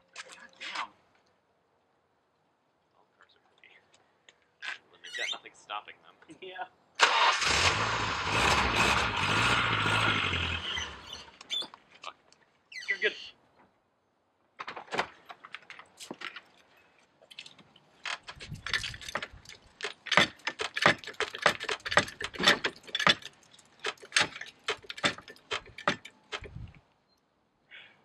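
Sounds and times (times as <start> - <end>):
floor jack metallic clicks: 17.3 - 26.7.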